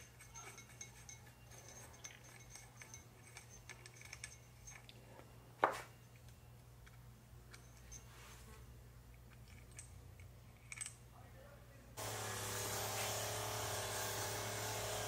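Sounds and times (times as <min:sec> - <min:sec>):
metal parts clinking: 0:00.0 - 0:05.1, 0:06.0 - 0:08.1, 0:09.1 - 0:11.1.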